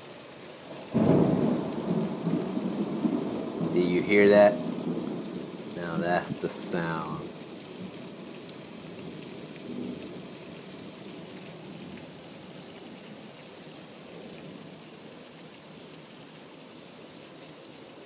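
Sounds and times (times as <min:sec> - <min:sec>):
heavy rain on foliage: 0:00.0 - 0:18.0.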